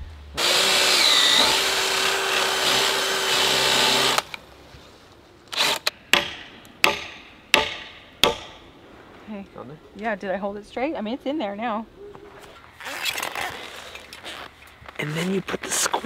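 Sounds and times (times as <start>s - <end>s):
cordless drill boring wood: 0.4s - 4.3s.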